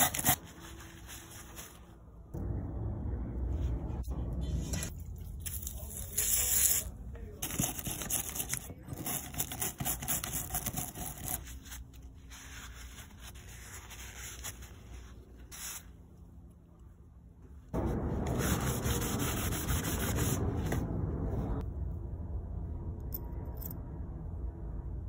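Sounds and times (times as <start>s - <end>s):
cloth rubbing on metal: 10.9s - 16.0s.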